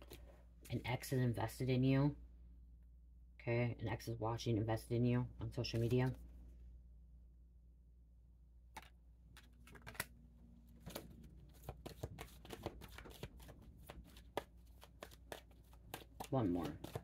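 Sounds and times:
cards being shuffled: 5.6 - 6.2, 8.7 - 17.0.

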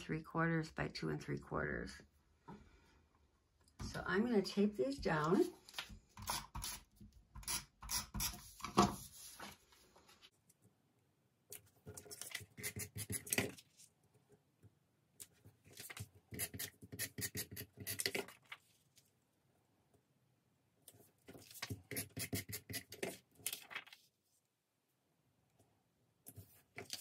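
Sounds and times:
paper rustling: 8.6 - 10.3, 18.0 - 19.1, 20.9 - 21.8, 23.0 - 24.4, 26.3 - 27.0.

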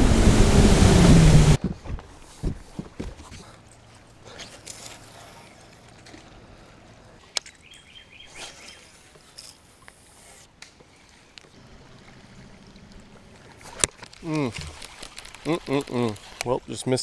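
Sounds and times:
water wash: 0.0 - 1.6, 11.5 - 17.0.

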